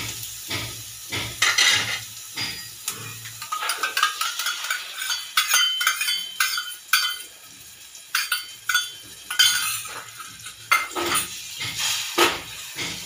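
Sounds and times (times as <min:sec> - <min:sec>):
steel cup clinking on saucepan: 0:01.4 - 0:07.4, 0:08.1 - 0:11.4.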